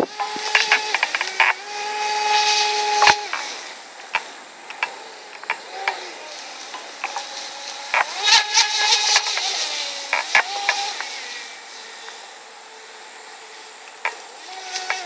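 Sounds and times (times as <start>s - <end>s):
sharp clicks: 0.0s - 1.6s, 2.2s - 6.0s
electric motor whining: 0.0s - 15.0s.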